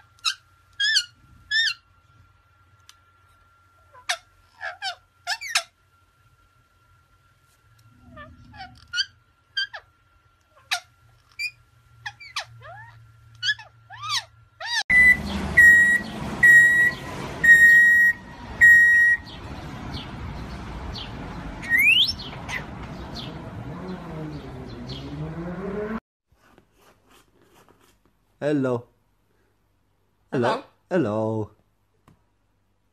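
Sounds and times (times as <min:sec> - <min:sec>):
parakeets chirping and whistling: 0:00.2 - 0:01.8, 0:03.9 - 0:05.8, 0:08.0 - 0:09.9, 0:10.5 - 0:26.0
loud beeps: 0:14.9 - 0:19.3
rising whistle: 0:14.9 - 0:19.3
street noise: 0:14.9 - 0:26.0.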